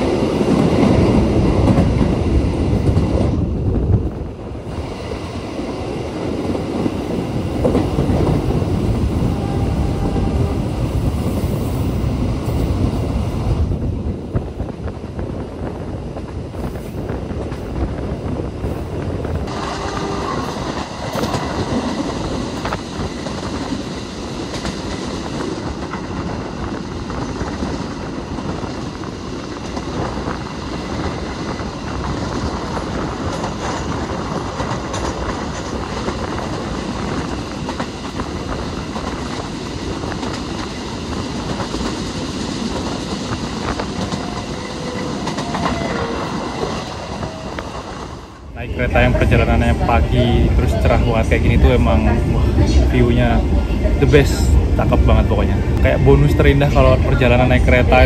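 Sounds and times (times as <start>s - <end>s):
train wheels rumbling on rails: 0.0s - 58.0s
wheels clickety-clack: 20.5s - 47.9s.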